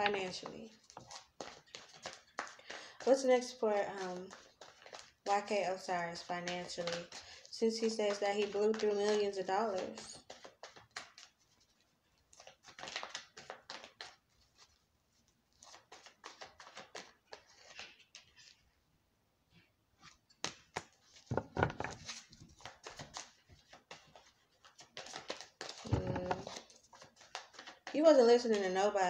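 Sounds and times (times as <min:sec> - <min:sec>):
cards being shuffled: 0:00.0 - 0:18.6, 0:20.0 - 0:29.0
deck of cards thudding: 0:20.4 - 0:23.2, 0:25.0 - 0:26.6.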